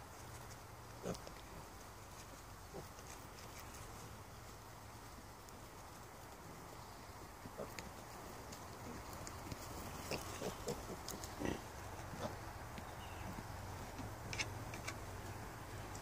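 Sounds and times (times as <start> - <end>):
piglets grunting: 1.0 - 1.3, 9.9 - 12.5.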